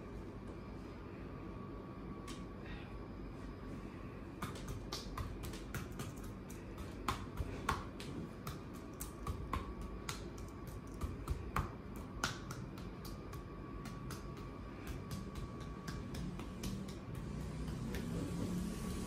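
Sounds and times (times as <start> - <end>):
massage claps on skin: 2.2 - 2.5, 4.3 - 19.0.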